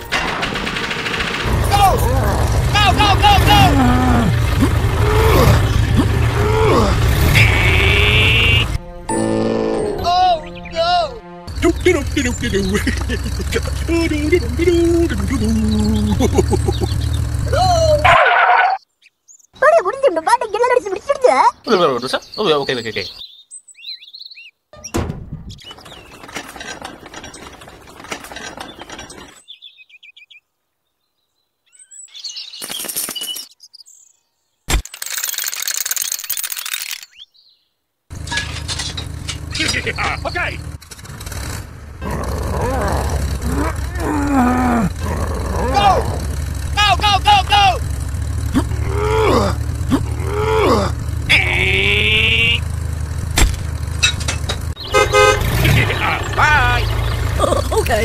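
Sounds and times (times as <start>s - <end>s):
tractor engine rumble: 0.0s - 8.8s, 11.5s - 18.3s, 24.8s - 29.4s, 38.1s - 58.0s
voice-like cries: 1.6s - 8.6s, 17.5s - 18.8s, 42.0s - 47.8s, 48.5s - 52.5s
bird chirps: 11.5s - 17.3s, 18.3s - 19.6s, 21.4s - 26.3s, 28.6s - 34.7s, 36.4s - 37.8s, 54.7s - 58.0s
toy parts scraping and clattering: 25.7s - 29.5s, 32.6s - 33.6s, 34.7s - 37.2s, 38.1s - 41.6s.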